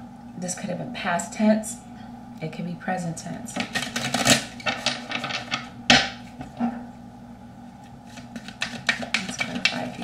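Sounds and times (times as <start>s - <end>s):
cards tapping on table: 8.4s - 9.8s.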